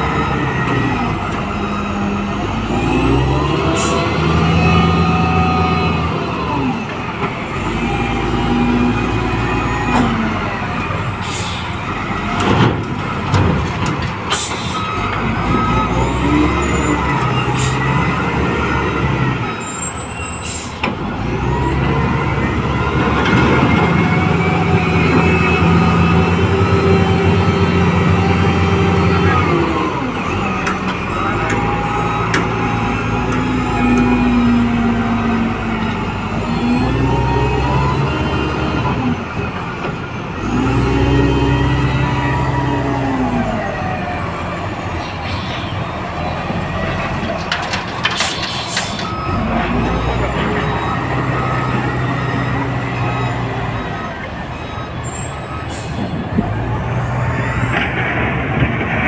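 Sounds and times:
diesel engine revving: 0:00.0 - 0:59.0
sharp knocks and bangs: 0:12.4 - 0:14.6.

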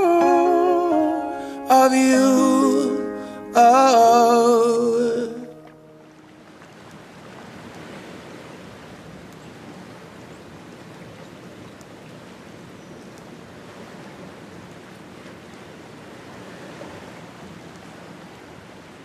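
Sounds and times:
small waves washing over rocks: 0:06.1 - 0:10.9.

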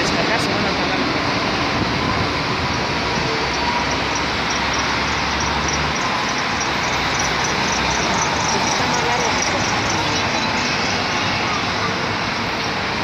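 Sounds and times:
deep traffic rumble: 0:00.0 - 0:13.0
road traffic noise: 0:00.0 - 0:13.0.

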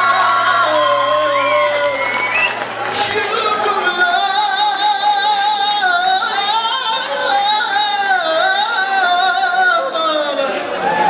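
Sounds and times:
man singing soul with vibrato: 0:00.0 - 0:11.0.

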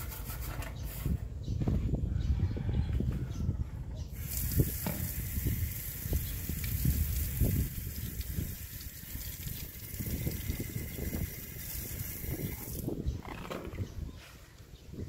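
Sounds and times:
water splashing on metal grate: 0:04.2 - 0:12.8.

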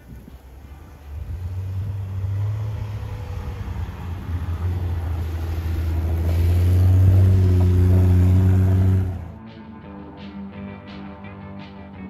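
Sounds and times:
car engine low hum: 0:00.0 - 0:09.4.

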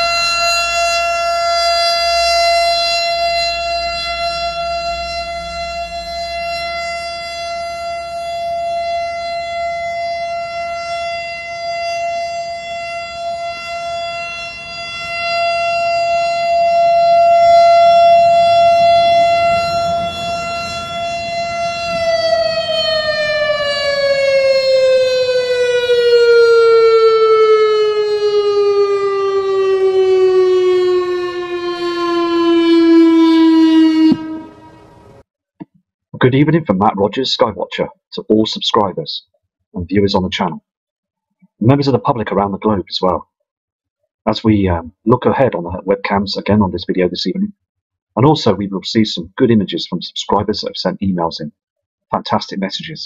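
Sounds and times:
warning siren wailing: 0:00.0 - 0:35.2.

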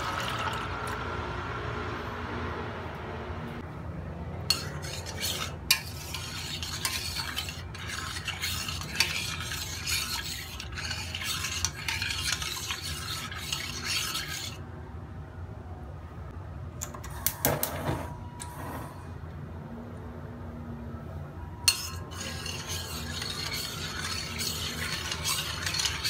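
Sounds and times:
metal spoon scraping saucepan: 0:04.5 - 0:14.6, 0:21.7 - 0:26.0.

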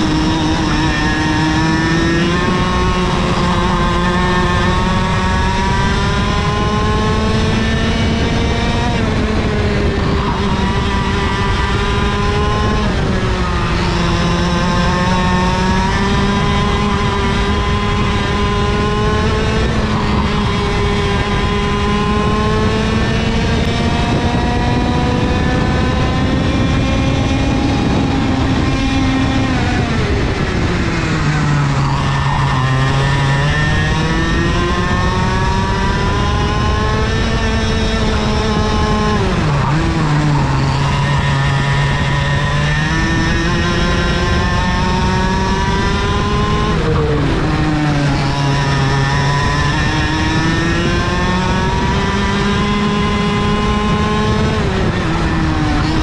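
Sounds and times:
kart engine at racing speed: 0:00.0 - 0:56.0.

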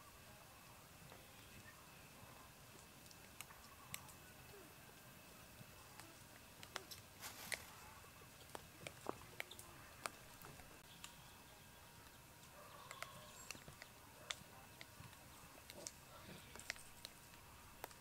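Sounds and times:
faint sharp clicks and ticks: 0:05.6 - 0:07.7, 0:12.0 - 0:18.0.

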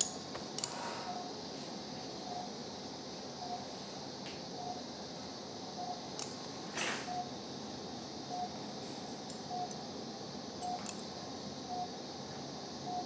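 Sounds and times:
patient monitor beeping: 0:02.2 - 0:02.6, 0:07.1 - 0:07.3, 0:10.6 - 0:10.8.

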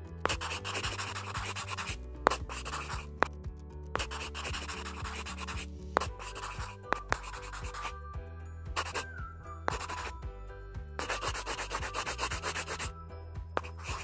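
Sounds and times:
background music: 0:00.0 - 0:14.0
marker scratching on paper: 0:00.2 - 0:03.3, 0:04.0 - 0:07.9, 0:08.8 - 0:09.1, 0:09.7 - 0:10.2, 0:11.0 - 0:12.9, 0:13.6 - 0:14.0.

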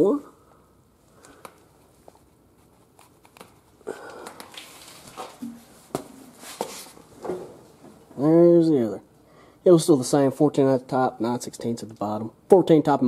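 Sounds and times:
rustling and handling noise: 0:01.0 - 0:08.3
footsteps on concrete: 0:05.0 - 0:07.0.

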